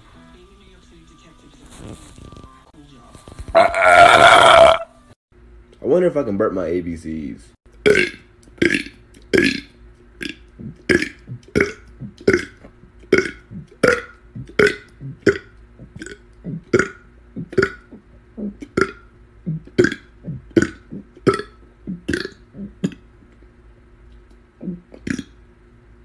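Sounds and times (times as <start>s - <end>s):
man burping: 3.6s - 4.9s, 10.6s - 23.0s.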